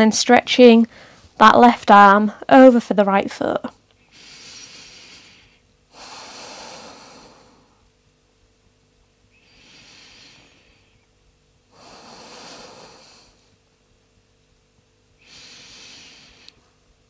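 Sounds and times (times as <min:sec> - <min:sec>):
person breathing deeply: 0:04.0 - 0:07.9, 0:09.3 - 0:11.1, 0:11.7 - 0:13.6, 0:15.2 - 0:16.7.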